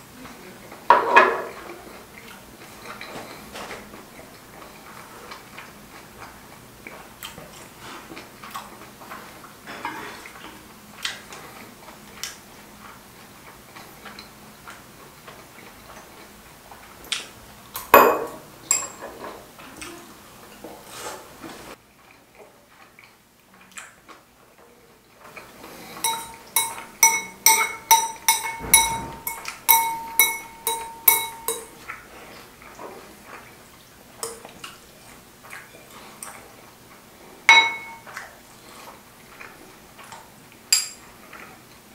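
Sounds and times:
chopsticks clicking on dishes: 26.0s - 31.8s
chopsticks clinking in ceramic bowl: 26.0s - 31.8s, 37.5s - 38.1s.

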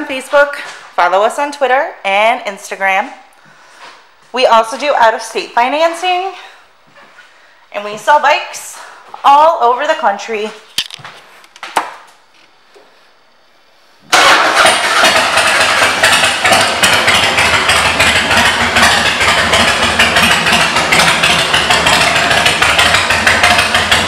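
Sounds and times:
motorcycle engine running: 14.1s - 24.0s.

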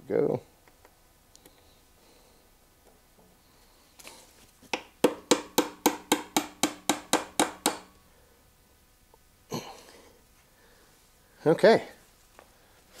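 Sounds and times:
hammer tapping on metal axle: 4.7s - 8.0s.

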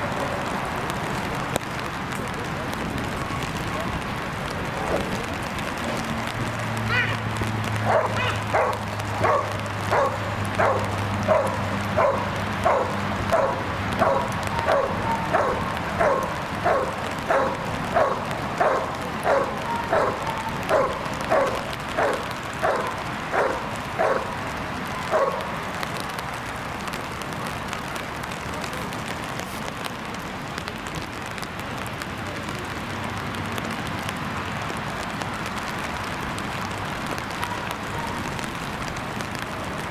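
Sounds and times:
young dog barking: 7.8s - 24.3s, 25.0s - 25.5s, 37.3s - 38.5s.

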